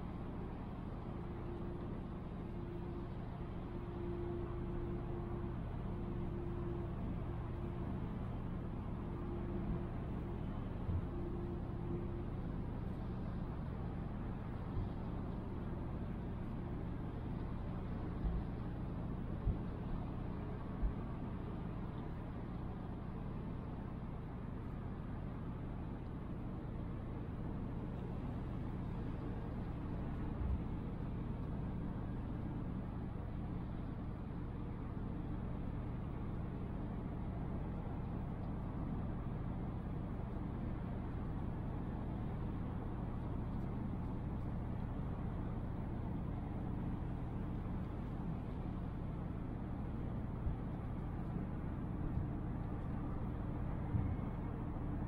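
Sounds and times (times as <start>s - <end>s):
low engine drone: 0.0s - 55.0s.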